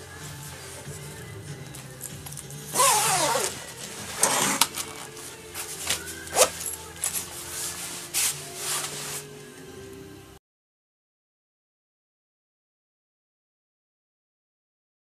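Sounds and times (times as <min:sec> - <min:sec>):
zipper being worked: 0:02.7 - 0:09.2
nylon jacket rustling: 0:02.7 - 0:09.4.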